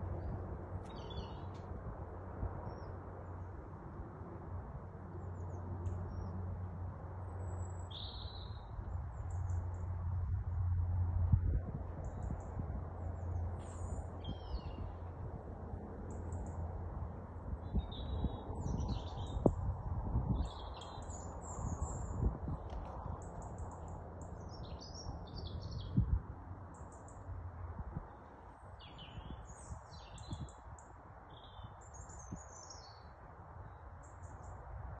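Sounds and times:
songbirds chirping: 0:00.2 - 0:01.7, 0:05.0 - 0:10.0, 0:11.9 - 0:15.1, 0:16.0 - 0:19.6, 0:20.3 - 0:34.7.

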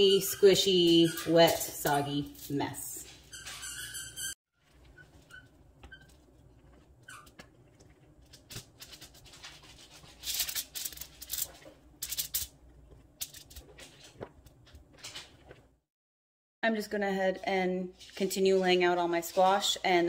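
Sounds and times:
aluminium foil crinkling: 0:07.8 - 0:12.6.

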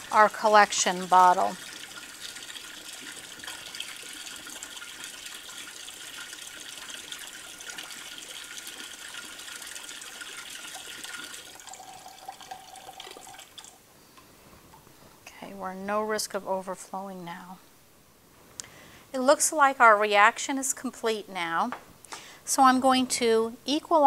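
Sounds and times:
water rushing from tap: 0:00.0 - 0:13.8.

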